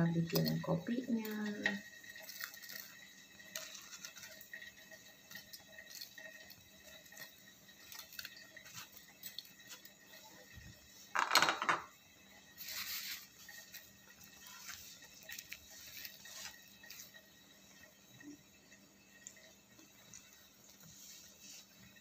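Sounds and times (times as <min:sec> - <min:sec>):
dishes and cutlery clinking: 0:11.2 - 0:12.0.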